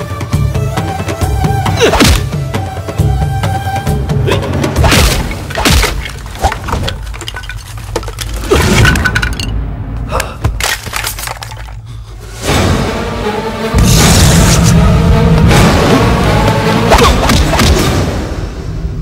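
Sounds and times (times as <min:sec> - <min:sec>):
sharp hits and cracks: 0:04.8 - 0:09.5
breaking and shattering: 0:04.8 - 0:09.6, 0:10.5 - 0:11.9.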